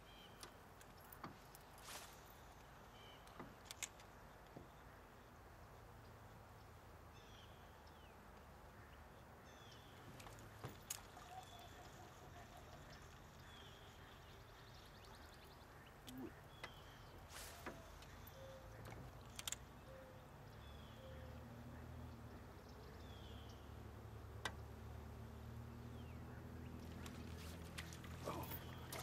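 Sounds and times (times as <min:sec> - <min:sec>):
faint bird chirps: 0:11.2 - 0:22.0.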